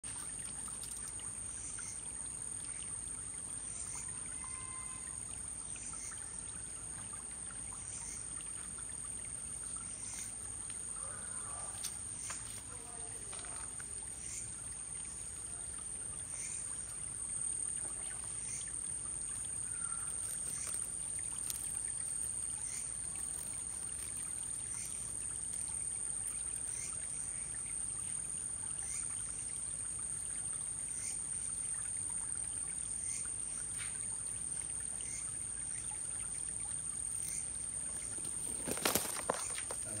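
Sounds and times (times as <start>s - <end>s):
high-pitched insect trill: 3.7s - 5.4s, 16.3s - 29.3s, 36.9s - 40.0s
rustling: 20.0s - 25.2s, 38.0s - 40.0s
steady hiss: 37.2s - 40.0s.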